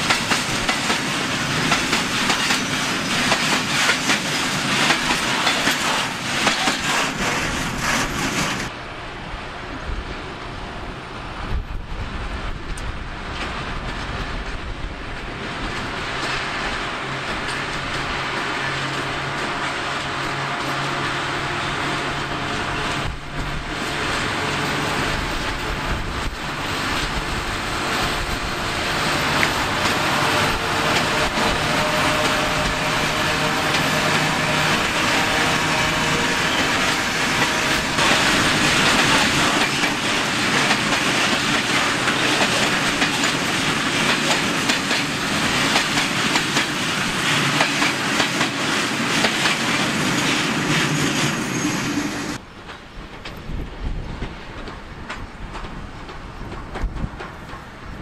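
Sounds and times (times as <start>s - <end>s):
wagon wheels clattering over rail joints: 0.0s - 8.7s, 29.0s - 51.4s
diesel locomotive engine drone: 0.0s - 58.0s.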